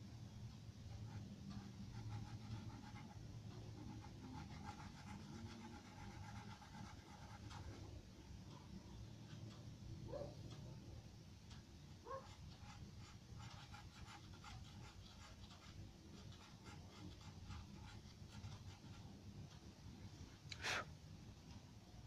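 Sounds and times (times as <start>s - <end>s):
pencil scratching on paper: 0.9s - 7.9s, 12.1s - 19.1s.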